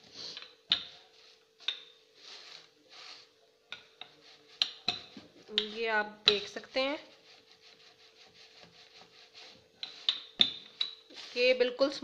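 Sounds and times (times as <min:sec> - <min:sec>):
paper rustling under rolling pin: 0:00.9 - 0:03.4, 0:06.7 - 0:12.0.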